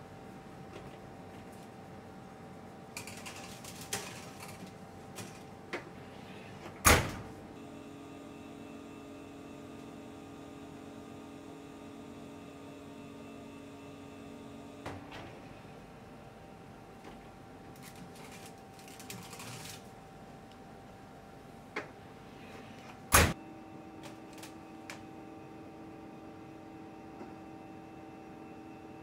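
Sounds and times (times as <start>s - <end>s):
oven humming: 0.0s - 29.0s
oven door banging shut: 6.8s - 7.3s, 23.1s - 23.4s.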